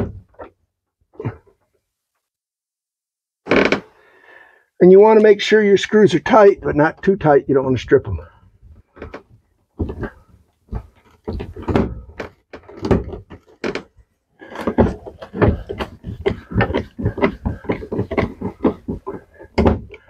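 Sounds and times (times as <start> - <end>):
screw creaking into plastic: 3.5 - 3.9.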